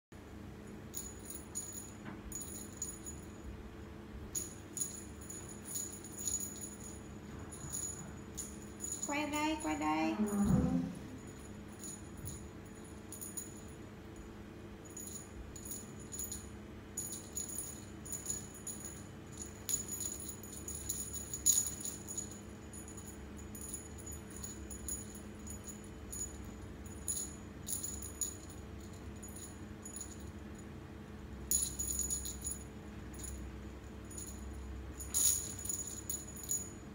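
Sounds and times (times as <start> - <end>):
faint steady hum: 0.2 - 36.9
cat toy jingling: 4.3 - 13.7, 15.0 - 30.3, 34.0 - 36.8.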